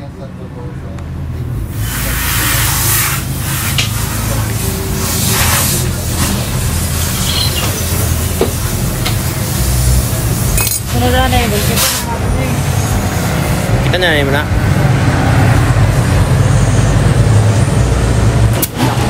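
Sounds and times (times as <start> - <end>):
compressed air hissing: 1.6 - 13.8.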